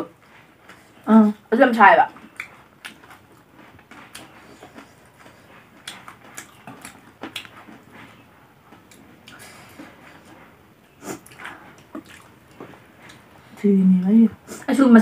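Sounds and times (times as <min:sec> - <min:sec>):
chewing and mouth smacks: 0:02.1 - 0:10.5, 0:11.1 - 0:13.3.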